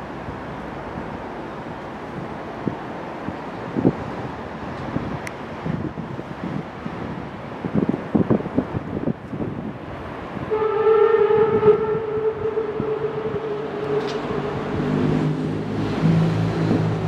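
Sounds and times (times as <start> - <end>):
steam locomotive whistle blast: 10.5 - 15.3.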